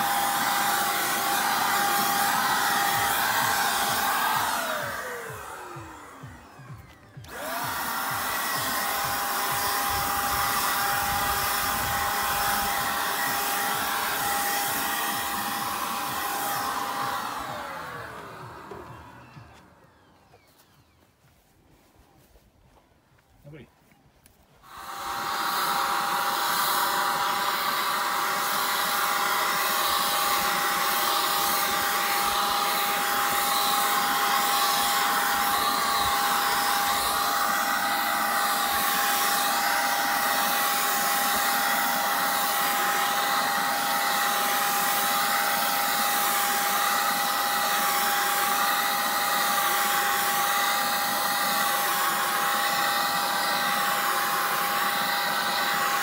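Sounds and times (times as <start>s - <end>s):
paint spray gun motor whine: 0.0s - 56.0s
hiss of air: 8.1s - 18.8s.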